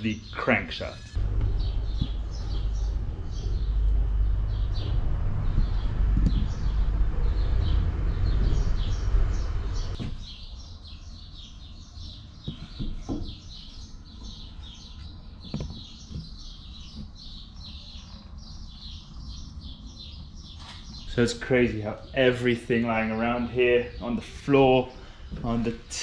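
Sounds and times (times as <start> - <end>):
small birds chirping: 0.0 - 26.0
loud low rumbling: 1.2 - 10.0.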